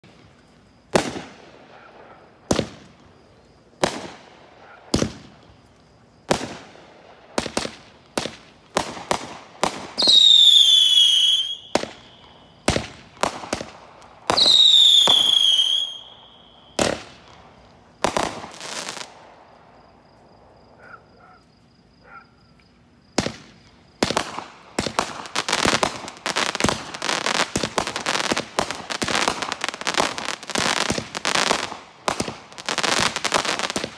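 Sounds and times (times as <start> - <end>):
firework bangs: 0.9 - 3.2, 3.8 - 5.6, 6.2 - 19.5, 23.1 - 33.9
firework crackling: 4.9 - 19.3, 23.2 - 33.9
firework whistle: 9.8 - 12.9, 14.2 - 17.1.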